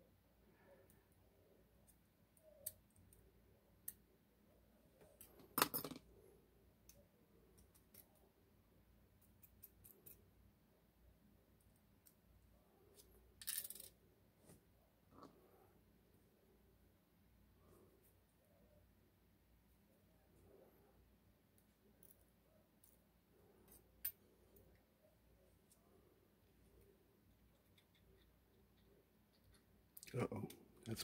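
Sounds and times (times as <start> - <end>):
small metallic clicks and scrapes: 7.6 - 8.2, 9.2 - 10.3, 27.4 - 30.1
metal parts rattling: 13.4 - 13.9.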